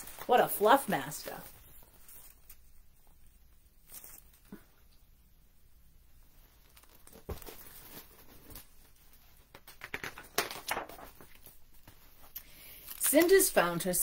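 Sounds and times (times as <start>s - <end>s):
paper rustling: 0.0s - 3.2s, 6.5s - 14.0s
page turning: 6.6s - 13.5s.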